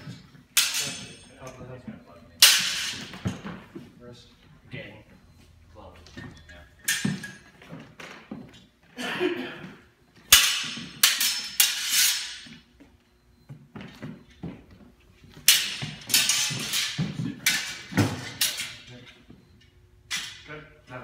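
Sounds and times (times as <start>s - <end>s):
swords clashing metallic clangs: 0.6s - 1.3s, 2.4s - 3.1s, 10.3s - 12.4s, 15.5s - 18.9s.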